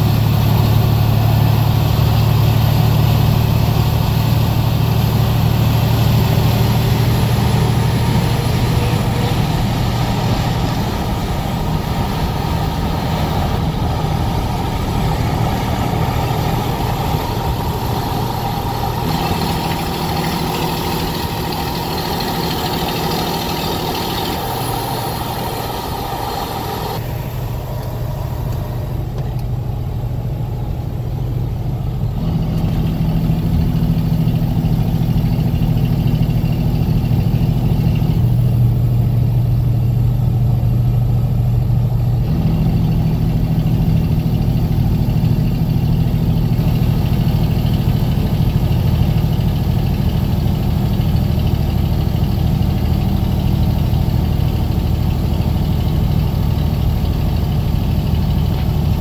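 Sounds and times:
road noise: 0.0 - 59.0
truck engine droning: 0.0 - 59.0.

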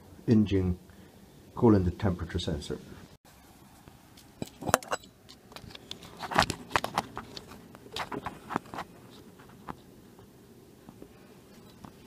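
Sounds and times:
handling clicks and rustles: 3.9 - 12.0.

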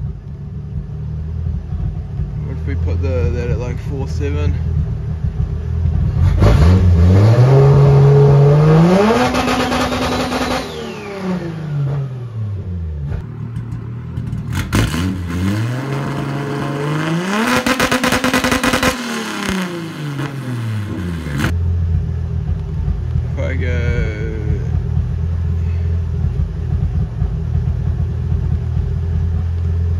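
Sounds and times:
car engine revving to limiter: 4.7 - 29.9.

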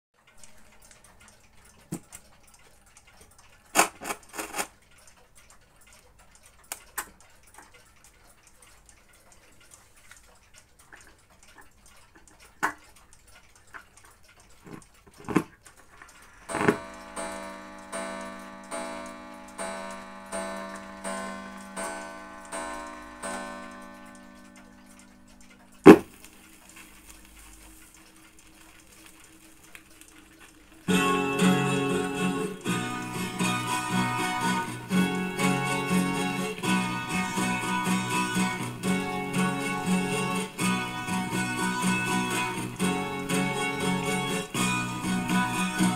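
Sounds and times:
regular ringing ticks: 0.2 - 45.9
record player controls clicking: 0.3 - 5.1, 10.8 - 45.9
low steady hum: 15.7 - 43.2.

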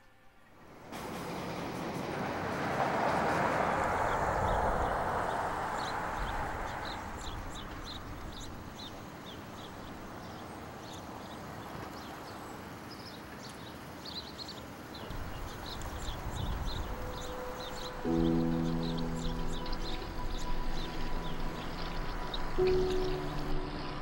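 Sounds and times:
city street noise: 0.0 - 24.0
low traffic rumble: 0.5 - 10.8, 15.0 - 24.0.

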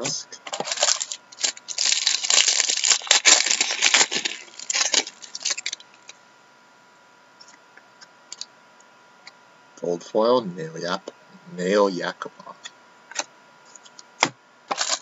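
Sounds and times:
wrapper crinkling and tearing: 0.5 - 6.2, 14.7 - 15.0.

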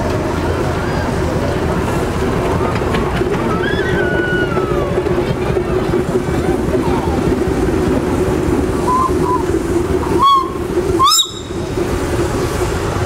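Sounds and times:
low rumble of engines: 0.0 - 13.0
steam whistle toots: 8.9 - 9.5, 10.1 - 11.8.

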